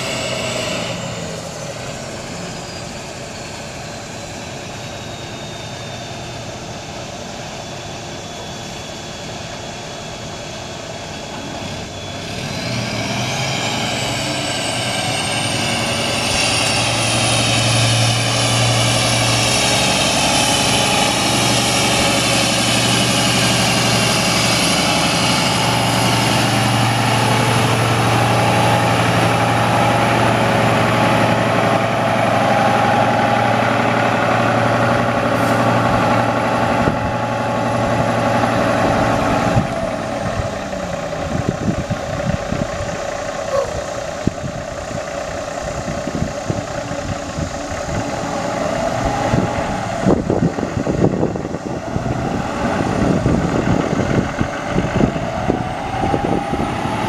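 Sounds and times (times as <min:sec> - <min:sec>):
diesel truck engine running: 0:00.0 - 0:57.0
engine high whine: 0:00.0 - 0:57.0.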